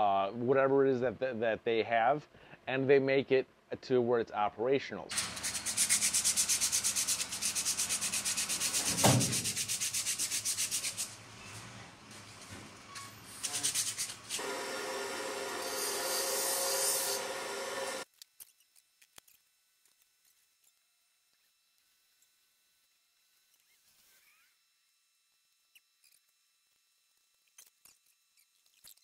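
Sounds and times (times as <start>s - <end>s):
hand sanding metal: 5.1s - 11.3s, 13.3s - 14.4s
sharp knock: 8.8s - 9.6s.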